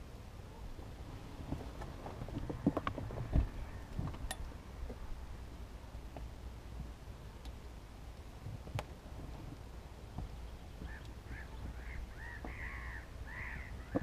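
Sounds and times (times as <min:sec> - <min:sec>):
geese honking: 0:10.9 - 0:14.0.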